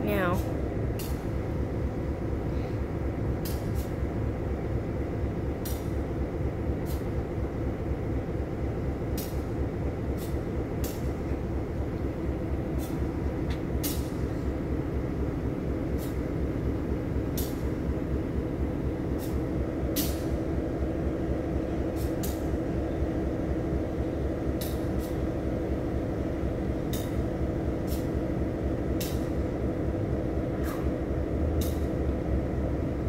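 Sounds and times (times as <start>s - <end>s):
diesel locomotive idling: 0.0s - 33.0s.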